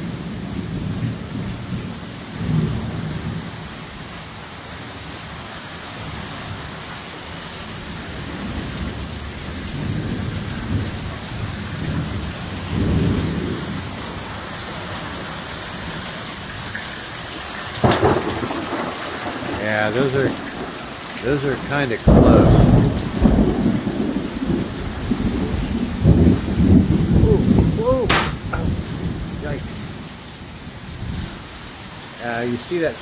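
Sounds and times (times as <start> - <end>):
heavy rain pouring: 0.0 - 33.0
thunder rumbling: 8.1 - 16.0, 17.8 - 31.6
sharp crack: 28.0 - 28.8.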